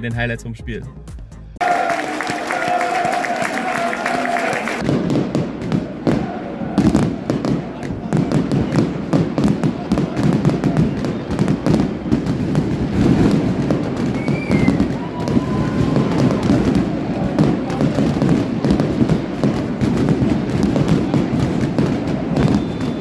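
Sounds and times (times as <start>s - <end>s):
fireworks bangs and crackles: 4.7s - 23.0s.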